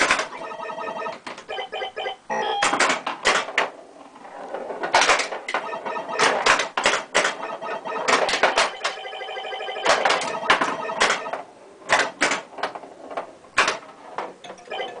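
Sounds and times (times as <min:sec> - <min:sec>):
pinball flippers and bumpers clacking: 0:00.0 - 0:03.7, 0:04.9 - 0:15.0
electronic beeps: 0:00.3 - 0:02.7, 0:05.6 - 0:06.5, 0:07.4 - 0:11.4, 0:14.7 - 0:15.0.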